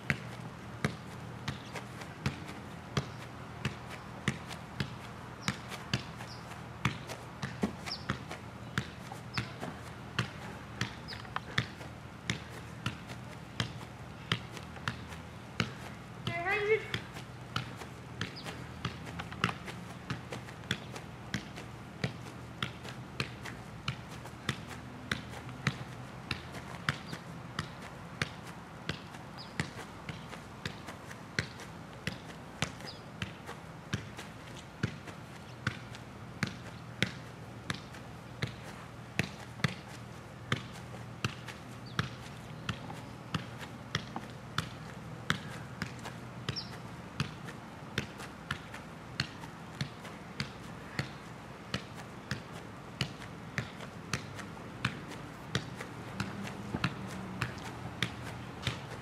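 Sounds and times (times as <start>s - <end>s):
foot tapping ball: 0.1s - 34.2s, 48.0s - 59.0s.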